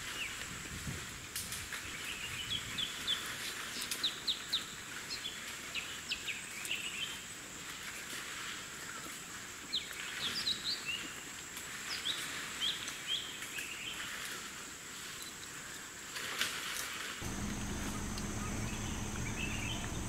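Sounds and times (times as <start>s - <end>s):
birds chirping: 17.2s - 20.0s.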